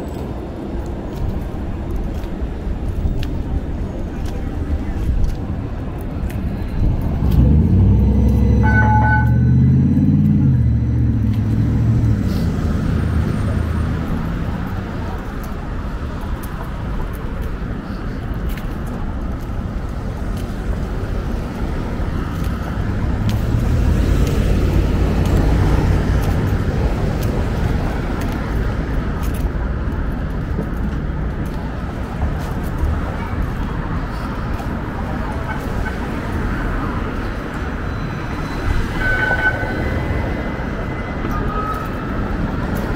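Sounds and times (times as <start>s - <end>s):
steady road noise: 0.0s - 42.9s
vehicle rumbling past: 6.5s - 14.8s, 20.9s - 28.9s
vehicle passing by: 6.6s - 14.7s, 22.3s - 28.6s
short beep: 8.4s - 10.0s, 37.9s - 40.2s.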